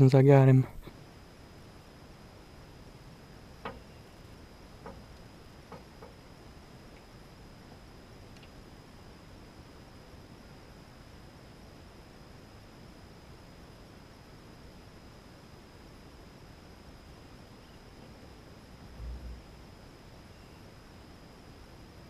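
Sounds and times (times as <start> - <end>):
open-air background hiss: 0.0 - 22.0
low rumble on microphone: 18.1 - 19.8.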